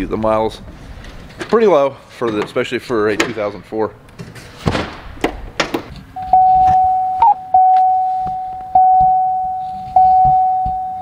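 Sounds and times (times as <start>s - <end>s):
car warning chime dinging: 6.2s - 11.0s.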